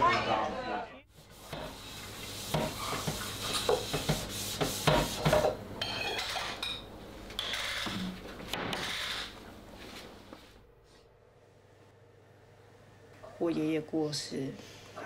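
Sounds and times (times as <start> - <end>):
crockery and utensils clinking: 5.3 - 6.9.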